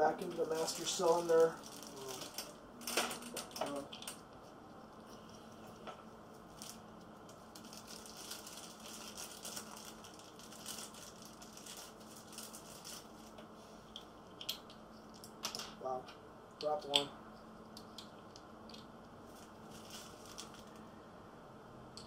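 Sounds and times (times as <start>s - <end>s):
plastic bag crinkling: 0.2s - 4.2s, 5.6s - 13.4s, 19.2s - 20.9s.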